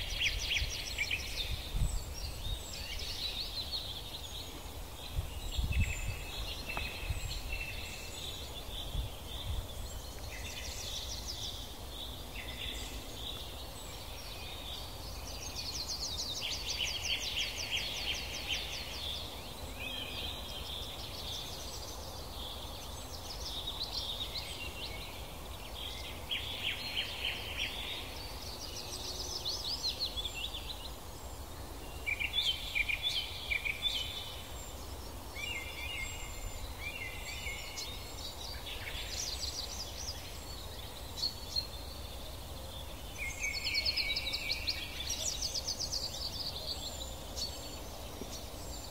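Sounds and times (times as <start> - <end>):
wind rumble on microphone: 0.0 - 13.4
songbirds singing: 0.0 - 48.9.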